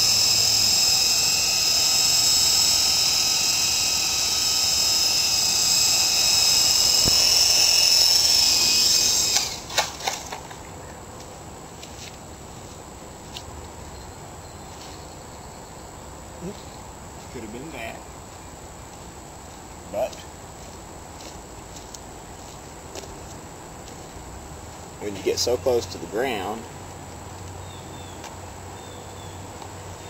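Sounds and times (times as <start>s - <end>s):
rc helicopter motor whine: 0.0s - 10.4s
faint hiss: 11.3s - 30.0s.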